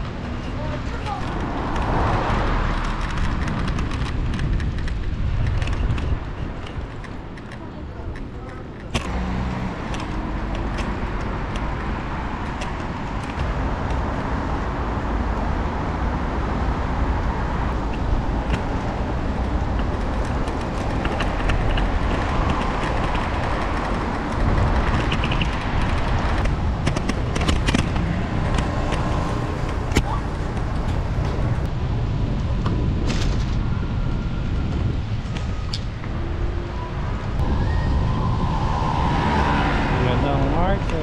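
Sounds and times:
passing traffic: 0.0 - 41.0
wind rumble on microphone: 0.0 - 41.0
scooter engine: 17.7 - 31.7.

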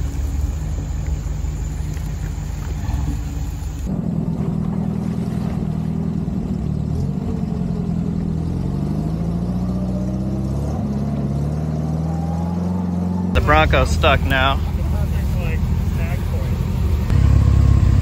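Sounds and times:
vehicle engine accelerating: 0.0 - 18.0.

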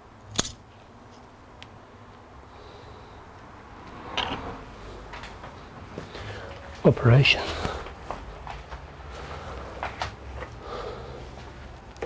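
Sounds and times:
heatsink snapping free: 0.3 - 0.6.

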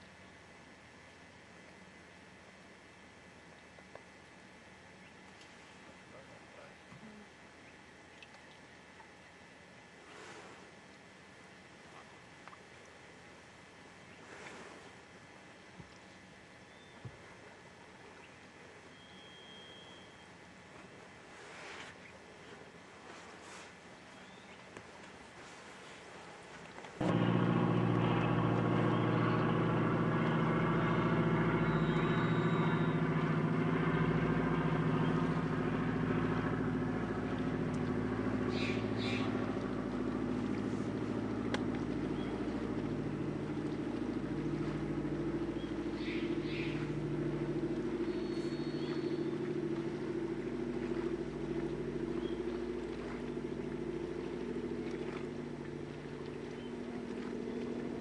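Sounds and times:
boat engine running: 18.8 - 58.0.

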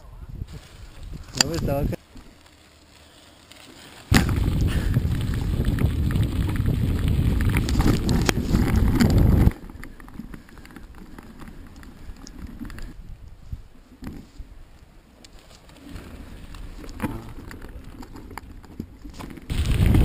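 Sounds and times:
wind buffeting microphone: 0.0 - 2.0, 4.1 - 10.4, 19.5 - 20.0
bike tyres crunching on gravel: 0.5 - 20.0.

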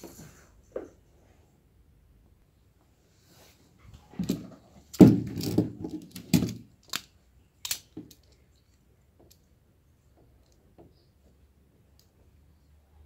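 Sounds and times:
cable and plastic tool handling: 4.2 - 9.4.

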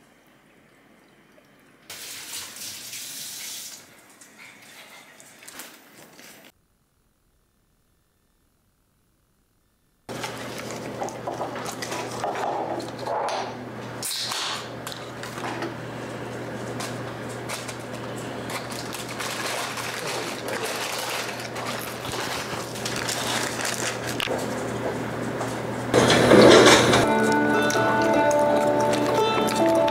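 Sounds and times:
steady low hum: 6.6 - 29.9
paper wrappers crinkling: 10.1 - 13.0, 16.7 - 24.6, 27.0 - 29.9.

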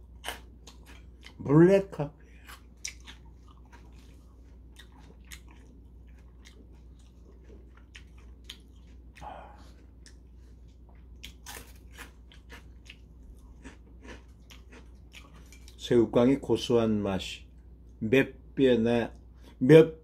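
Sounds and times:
crunching and chewing crackers: 0.0 - 15.9.

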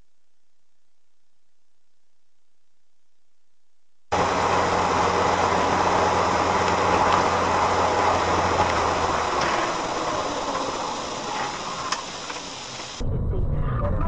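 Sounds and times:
road noise inside moving car: 4.1 - 13.1
low engine hum: 4.1 - 14.0.

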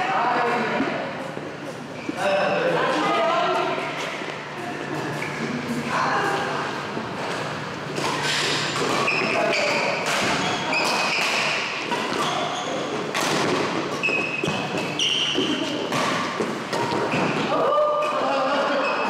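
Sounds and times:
sneakers squeaking on court floor: 7.2 - 17.5
racket hitting shuttlecock: 7.2 - 18.2.

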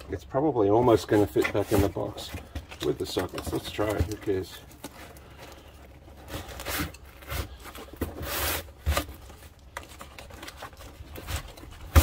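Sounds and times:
canvas scraping against cardboard: 0.8 - 3.0, 3.6 - 9.4.

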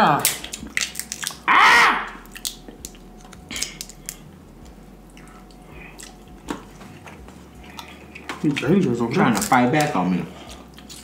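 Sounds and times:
crab shell cracking: 0.2 - 1.5, 2.2 - 4.2
chewing: 0.4 - 1.4, 2.2 - 4.2, 5.1 - 8.7, 10.4 - 11.0.

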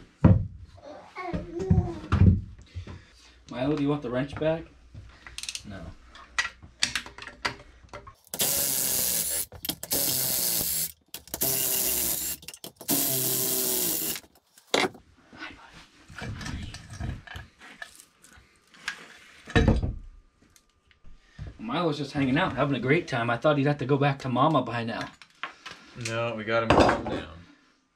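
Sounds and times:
cordless power tool spinning: 8.2 - 14.4
hand wrench clicking: 8.2 - 14.4.

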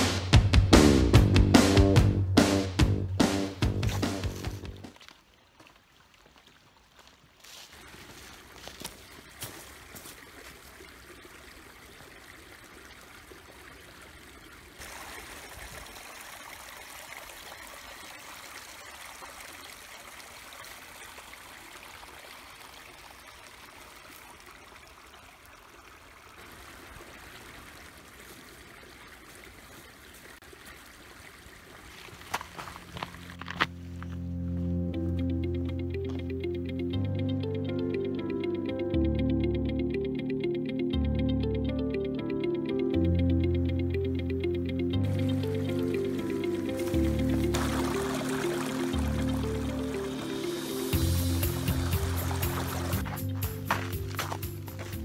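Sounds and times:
brook trickling over rocks: 3.8 - 34.2, 45.0 - 55.0.

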